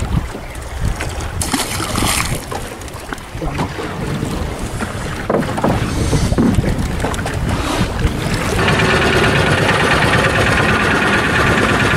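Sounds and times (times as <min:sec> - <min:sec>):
water sloshing around boat: 0:00.0 - 0:11.9
wind buffeting microphone: 0:00.0 - 0:11.9
fish splashing at surface: 0:01.4 - 0:03.2.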